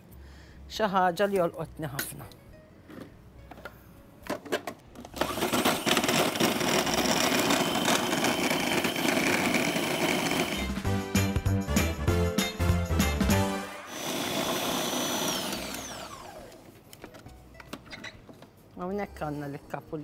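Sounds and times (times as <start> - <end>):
food processor motor running: 5.2 - 10.8, 13.9 - 16.6.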